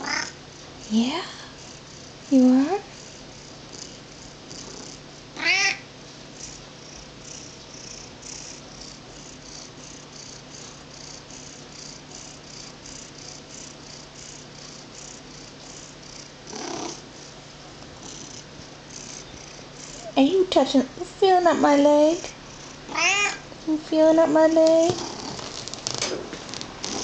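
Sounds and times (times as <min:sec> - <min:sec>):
cat meowing: 0:00.0 - 0:00.4, 0:05.4 - 0:05.9, 0:22.9 - 0:23.4
cat purring: 0:00.0 - 0:05.8, 0:06.4 - 0:27.0.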